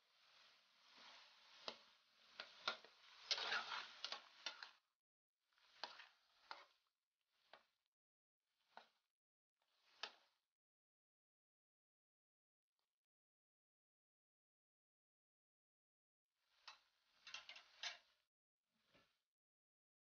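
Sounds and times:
metal spatula scraping a wok: 0:03.2 - 0:04.6.

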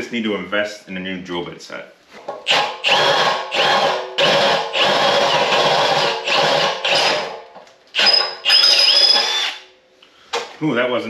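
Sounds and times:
cordless drill boring into metal: 0:02.5 - 0:07.3, 0:08.0 - 0:09.6.

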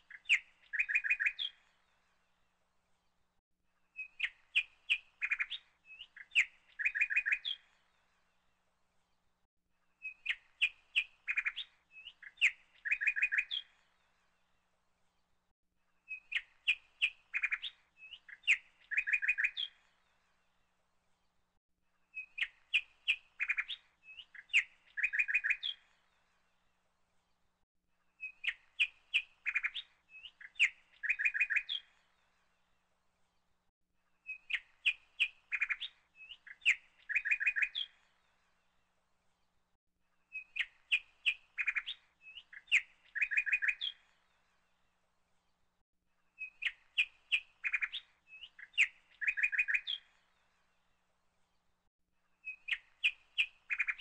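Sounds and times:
bird chirps: 0:00.0 - 0:02.0, 0:03.9 - 0:08.0, 0:10.0 - 0:14.1, 0:16.0 - 0:20.3, 0:22.0 - 0:26.4, 0:28.1 - 0:32.3, 0:34.2 - 0:38.6, 0:40.2 - 0:44.7, 0:46.2 - 0:50.8, 0:52.3 - 0:54.0.

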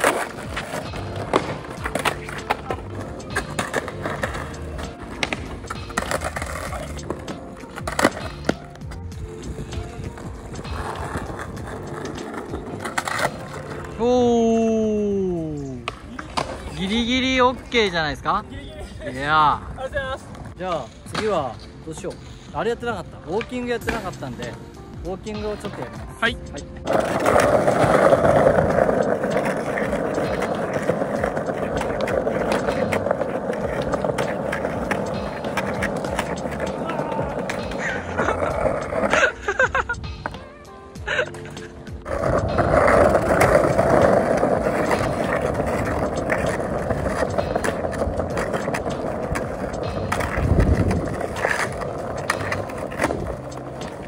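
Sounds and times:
light skateboard clicks: 0:00.0 - 0:13.8, 0:15.7 - 0:17.0
skateboard wheels rolling on stone: 0:00.0 - 0:18.5, 0:19.1 - 0:54.0.

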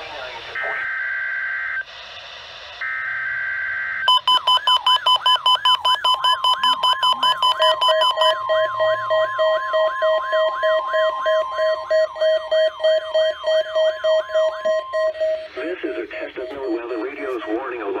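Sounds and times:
steady high tone: 0:04.1 - 0:18.0
falling siren-like tone: 0:04.2 - 0:16.9
lower steady tone: 0:04.2 - 0:18.0.

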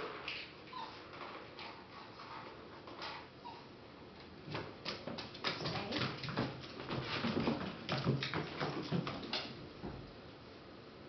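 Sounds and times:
dog claws clicking on floor: 0:04.2 - 0:09.6.

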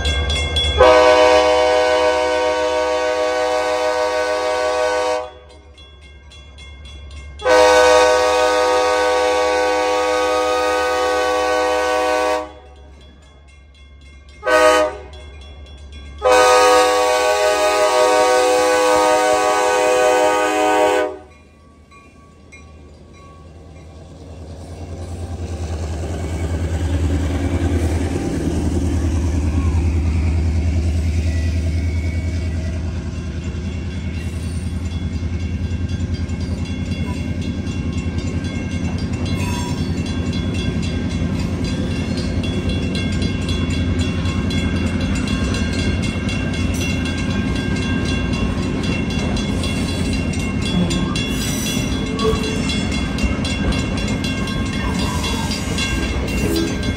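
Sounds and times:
crossing bell ringing: 0:00.0 - 0:56.9
low diesel locomotive rumble: 0:00.0 - 0:56.9
train wheels clicking over rail joints: 0:21.3 - 0:56.9.

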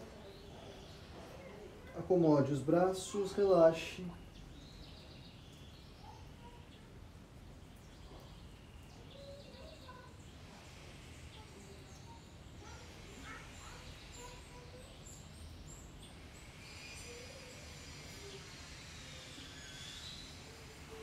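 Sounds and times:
low outdoor background noise: 0:00.0 - 0:21.0
birds chirping and calling: 0:07.7 - 0:10.2.

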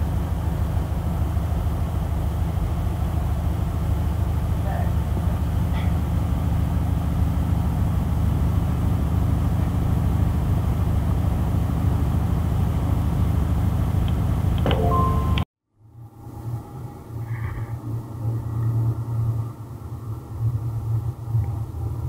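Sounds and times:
diesel train engine rumbling: 0:00.0 - 0:15.4
brief beep: 0:14.7 - 0:15.4.

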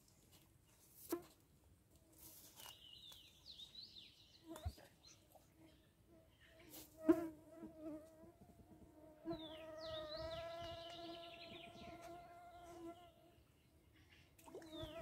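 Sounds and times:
insect buzzing: 0:09.2 - 0:13.0.

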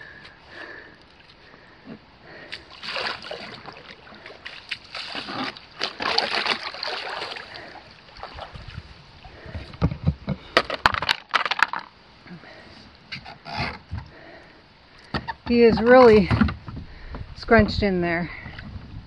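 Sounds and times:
water sloshing around hull: 0:00.0 - 0:10.4
paddle strokes splashing: 0:02.4 - 0:09.8.

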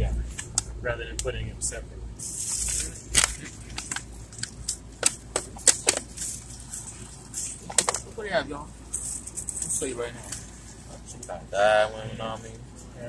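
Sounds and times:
plastic containers crinkling: 0:02.4 - 0:08.2.

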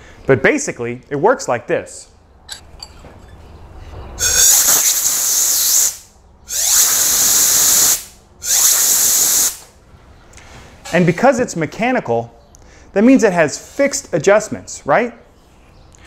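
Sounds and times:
compressed air blasts hissing: 0:04.2 - 0:09.8.

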